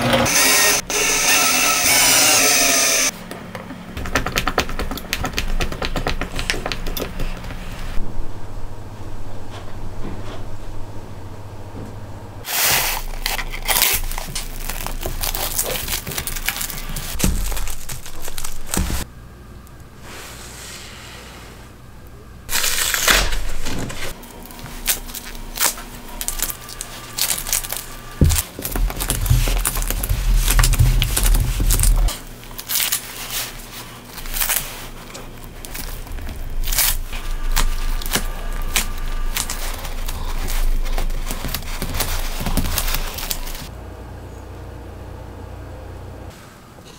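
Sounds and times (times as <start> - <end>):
low steady hum: 6.2 - 46.9
plastic cling film crinkling: 12.5 - 19.0, 22.5 - 43.7
putty kneaded in gloves: 24.0 - 43.7.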